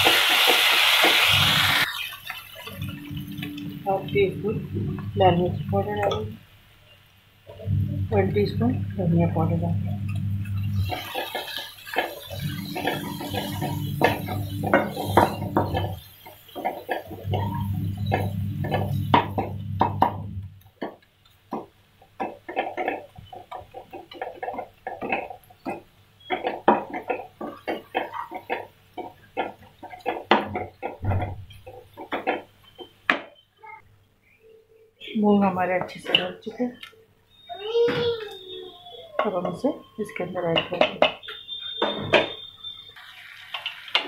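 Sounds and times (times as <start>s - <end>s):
low steady hum: 2.6s - 6.5s, 7.4s - 16.0s, 16.6s - 20.7s
wooden spatula scraping a pan: 10.6s - 19.5s, 22.2s - 32.5s.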